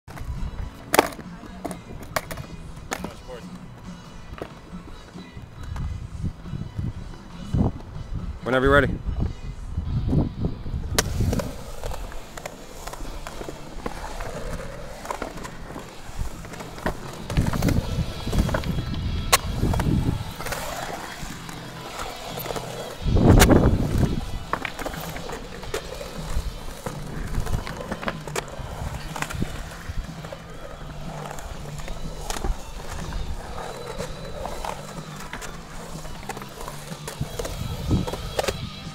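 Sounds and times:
skateboard wheels rolling on concrete: 0.1s - 38.9s
sharp skateboard clacks: 13.8s - 30.3s.

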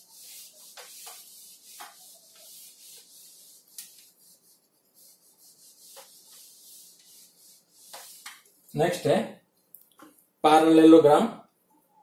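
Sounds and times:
eraser rubbing on whiteboard: 0.0s - 8.5s.

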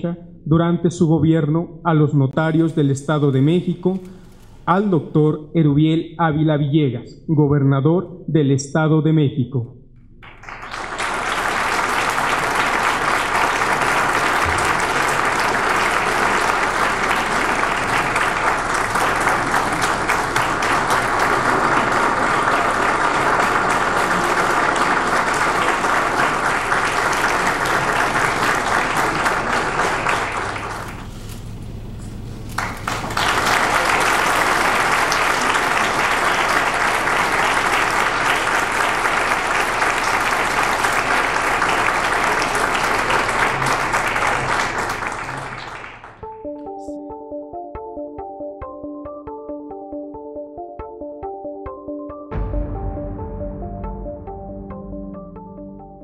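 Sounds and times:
audience applauding: 10.2s - 31.2s, 32.4s - 46.2s.

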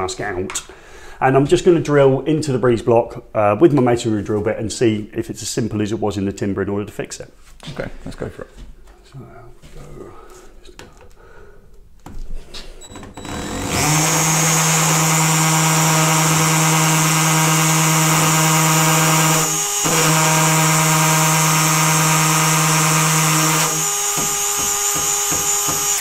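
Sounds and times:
cordless drill boring into block: 13.2s - 26.0s.

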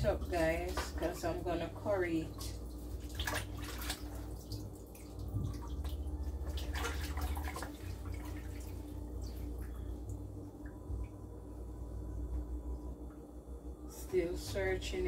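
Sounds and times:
low steady hum: 0.0s - 15.0s
water splashing and dripping: 2.2s - 10.2s.

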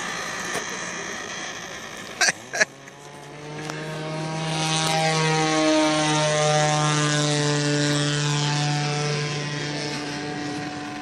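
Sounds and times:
model plane engine running: 0.0s - 11.0s.

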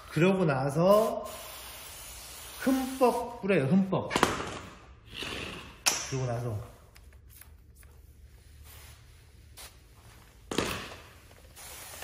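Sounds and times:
spray bottle spritzing: 0.9s - 3.2s, 11.2s - 12.0s.

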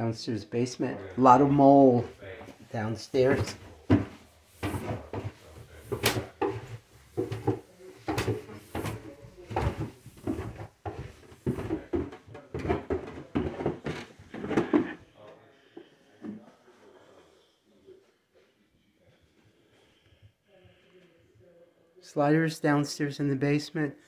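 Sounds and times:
footsteps on carpeted stairs: 2.0s - 15.1s.

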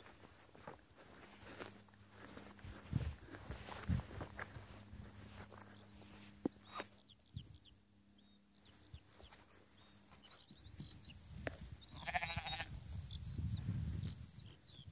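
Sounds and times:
small birds chirping: 0.0s - 14.9s
sheep bleating: 11.9s - 12.8s.

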